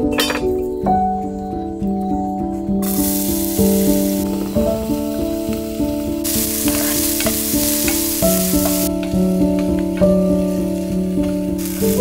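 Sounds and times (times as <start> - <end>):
onion sizzling in hot oil: 2.8 - 12.0.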